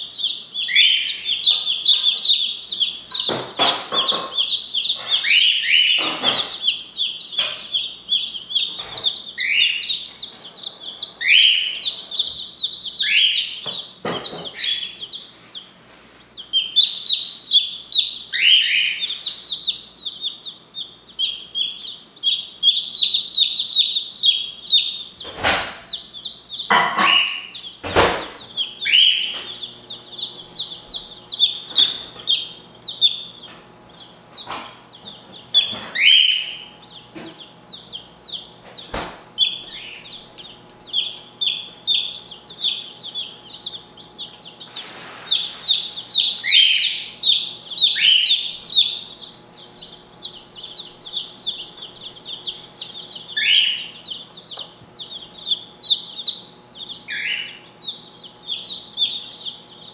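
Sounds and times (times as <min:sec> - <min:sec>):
chicks peeping: 0:00.0 - 0:59.9
sharp knocks: 0:03.1 - 0:05.1, 0:26.7 - 0:28.5, 0:38.6 - 0:39.3.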